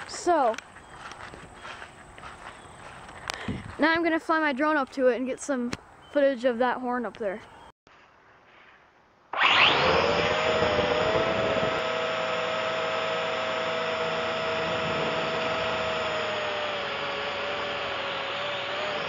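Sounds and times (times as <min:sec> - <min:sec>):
drone propellers whirring: 0:09.3 - 0:19.0.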